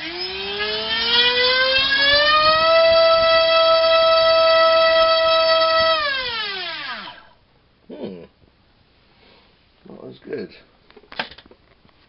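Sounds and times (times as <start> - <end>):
electric motor whine: 0.0 - 7.4.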